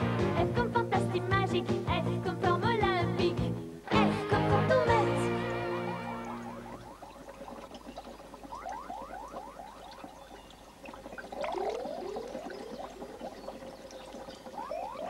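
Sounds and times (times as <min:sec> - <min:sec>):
faint steady tone: 0:04.2 - 0:15.0
liquid bubbling in glassware: 0:05.0 - 0:15.0.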